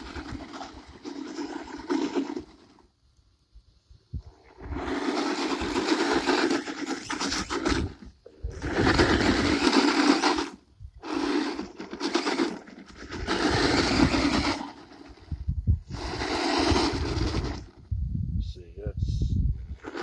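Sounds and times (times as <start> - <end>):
rc truck electric motor: 0.0 - 2.8, 4.6 - 17.8, 19.8 - 20.0
tyres scraping on gravel: 0.0 - 2.8, 4.5 - 15.3, 16.0 - 17.8, 19.8 - 20.0.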